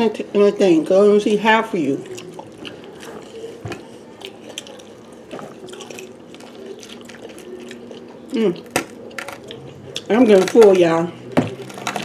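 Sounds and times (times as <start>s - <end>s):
slurping and dripping milk: 2.0s - 10.1s.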